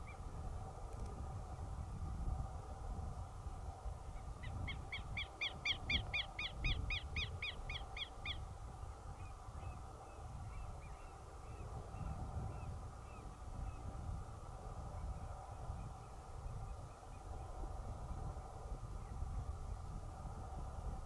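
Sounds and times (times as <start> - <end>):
low wind rumble: 0.0 - 21.0.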